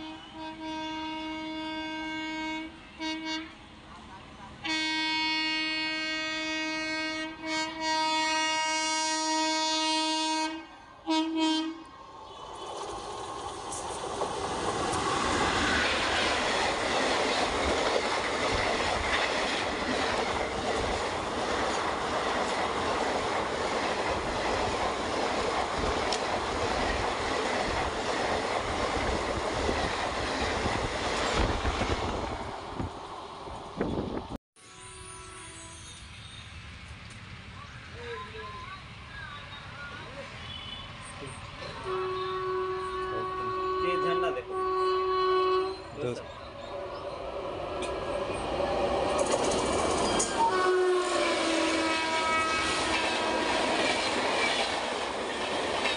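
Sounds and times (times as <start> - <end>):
locomotive horn blasts: 0.0 - 3.6, 4.6 - 11.9, 34.6 - 36.0, 41.7 - 45.9, 50.3 - 53.6
train passing with wheels clattering: 7.0 - 34.4, 35.0 - 44.3, 45.3 - 55.9.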